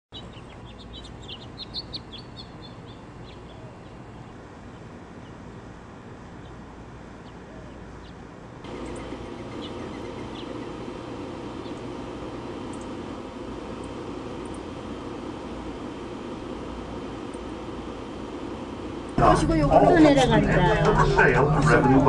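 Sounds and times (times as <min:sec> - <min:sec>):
small birds chirping: 0:00.1 - 0:05.4, 0:06.4 - 0:19.2
steady background hum: 0:00.2 - 0:22.0.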